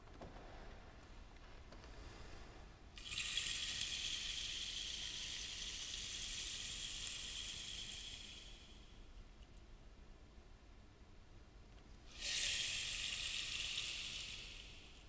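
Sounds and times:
high percussion rattle: 3.0 - 8.9, 12.1 - 15.0.

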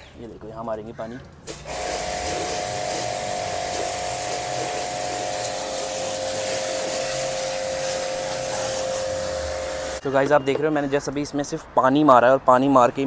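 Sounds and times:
pressure washer motor whine: 1.5 - 10.0
water jet hissing: 1.5 - 10.0.

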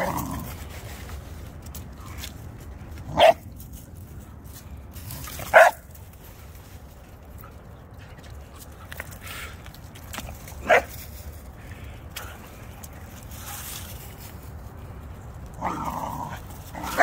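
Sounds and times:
dog barking: 3.1 - 3.4, 5.5 - 5.8, 10.6 - 10.9.

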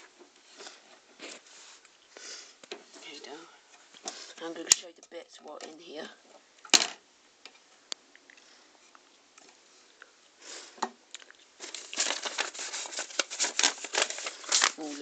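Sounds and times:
paper and card rustling: 11.6 - 15.0.

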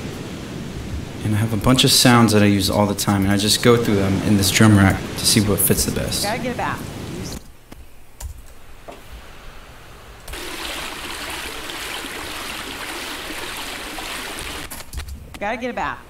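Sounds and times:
running water rushing: 0.0 - 7.4, 8.6 - 14.9.

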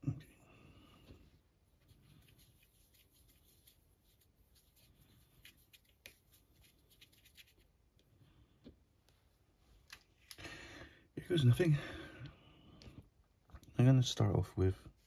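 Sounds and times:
paintbrush clicking and rubbing: 1.8 - 8.0.

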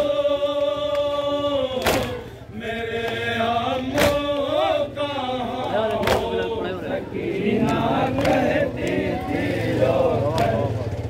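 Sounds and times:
men chanting in unison: 0.0 - 11.0
chest-beating slaps: 1.8 - 2.3, 3.9 - 4.5, 5.9 - 6.4.

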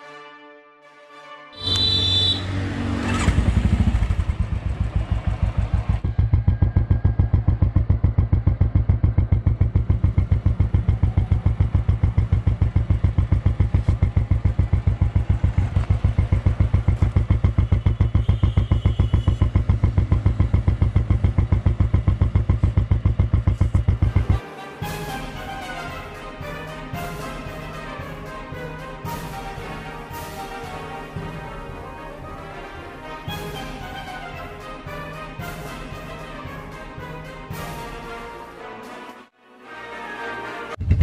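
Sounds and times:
motorcycle engine idling: 3.2 - 24.4, 40.8 - 41.0.

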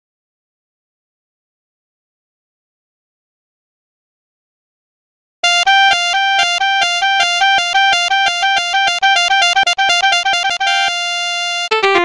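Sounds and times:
electronic keyboard backing music: 5.4 - 12.0.

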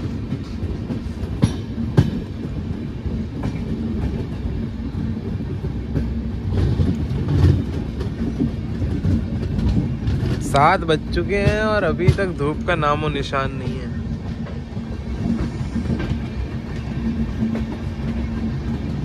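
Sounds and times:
train coaches rumbling: 0.0 - 19.0
wheels clacking on rails: 0.0 - 19.0.

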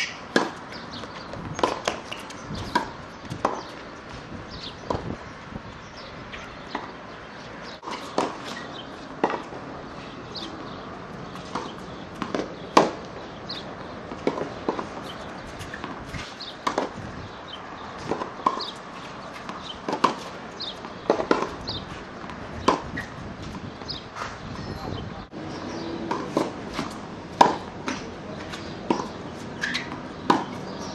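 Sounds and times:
balls bouncing on hard court: 0.0 - 5.2, 10.3 - 25.0, 25.7 - 30.9
tennis balls struck by rackets: 0.0 - 5.4, 6.0 - 30.9.

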